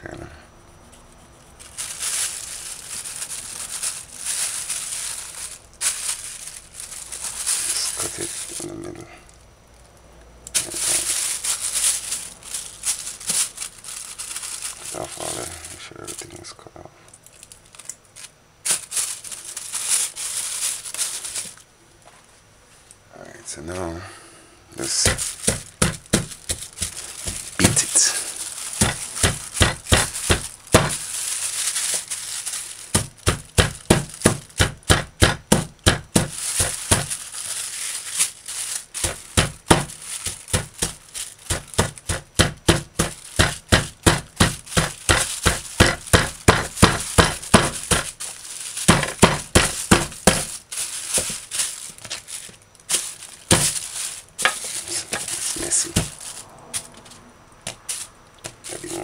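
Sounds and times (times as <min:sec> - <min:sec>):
plastic bag crinkling: 0:00.8 - 0:21.7, 0:24.8 - 0:59.0
hammer pounding meat: 0:25.0 - 0:27.8, 0:28.8 - 0:31.0, 0:33.0 - 0:37.1, 0:39.0 - 0:48.1, 0:48.9 - 0:50.5.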